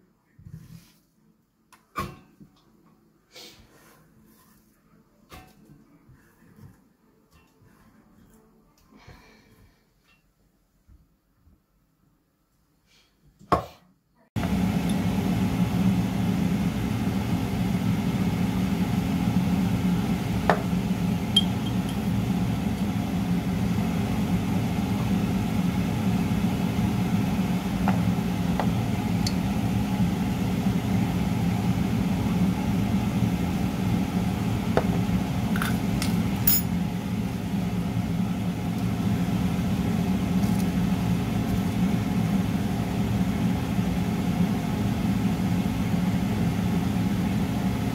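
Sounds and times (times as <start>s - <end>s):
low mechanical hum: 14.4s - 47.9s.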